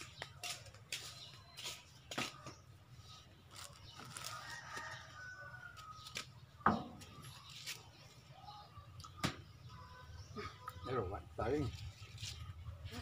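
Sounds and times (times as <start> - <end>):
plastic packaging crinkling: 3.5 - 4.9
rooster crowing: 4.2 - 5.9.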